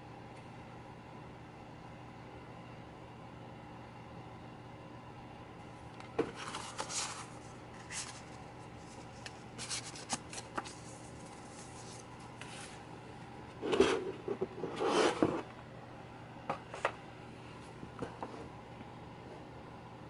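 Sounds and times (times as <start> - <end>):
paper and cardboard rustling: 6.2 - 12.9.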